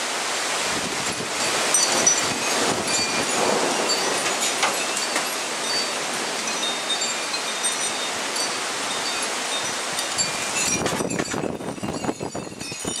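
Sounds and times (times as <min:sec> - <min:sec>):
hail and rain hiss: 0:00.0 - 0:12.3
metal wind chimes ringing: 0:01.0 - 0:13.0
hailstones ticking: 0:01.1 - 0:08.6.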